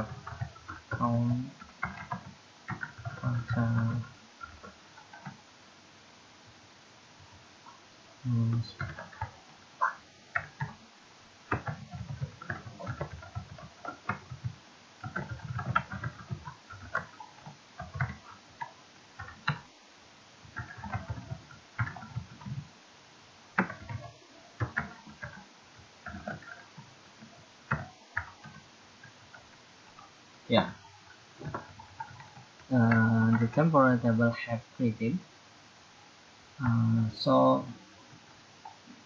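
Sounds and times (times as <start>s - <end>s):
keyboard typing clicks: 0.0s - 5.4s, 8.7s - 10.8s, 11.5s - 19.7s, 20.4s - 22.7s, 23.6s - 25.4s, 26.0s - 26.9s, 27.7s - 29.5s.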